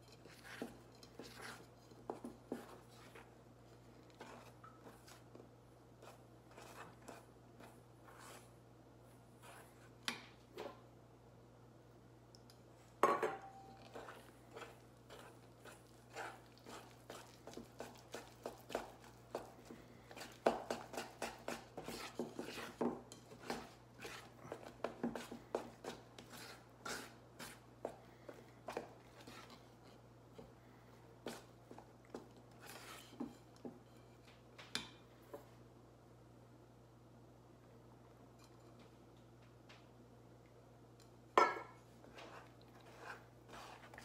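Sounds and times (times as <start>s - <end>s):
spoon scraping metal bowl: 0.0s - 3.3s, 20.1s - 27.6s, 32.6s - 33.5s, 42.2s - 44.0s.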